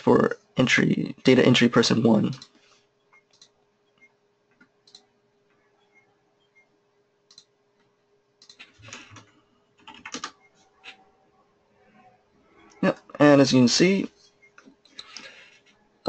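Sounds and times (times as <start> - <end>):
faint steady hum: 0.0 - 16.0
typing on computer keyboard: 8.4 - 11.0.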